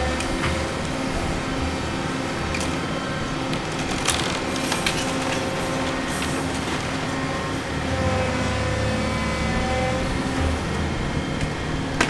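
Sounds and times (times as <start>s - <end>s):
excavator diesel engine running: 0.0s - 12.0s
timber splintering cracks: 3.6s - 6.1s.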